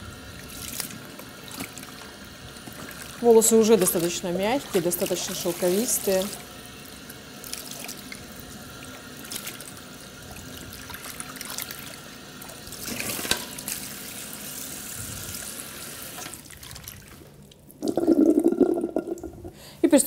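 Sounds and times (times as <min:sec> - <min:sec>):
water spraying through wet hair: 0:03.0 - 0:06.5
water splashing into basin: 0:16.2 - 0:19.5.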